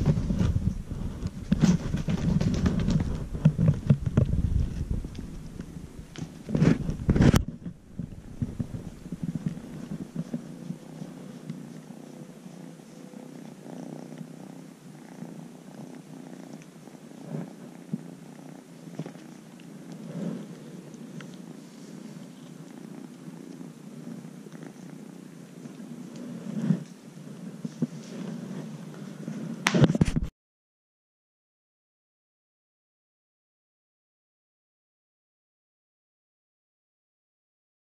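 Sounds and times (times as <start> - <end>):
kitten purring: 0.0 - 30.2
soft rustles and bumps: 0.0 - 30.3.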